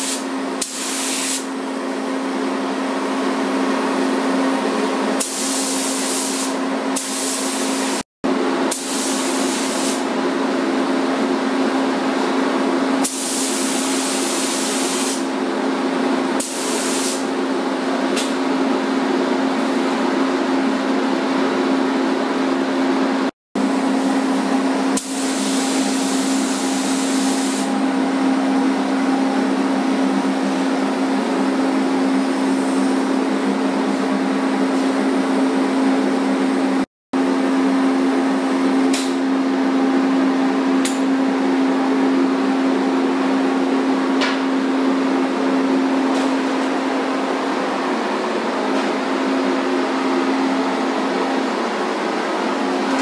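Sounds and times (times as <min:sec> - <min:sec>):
spray gun air hiss: 0:00.0 - 0:01.5, 0:05.2 - 0:08.0, 0:08.7 - 0:10.0, 0:13.0 - 0:15.3, 0:16.4 - 0:17.3, 0:25.0 - 0:27.7
ventilation droning hum: 0:00.0 - 0:53.0.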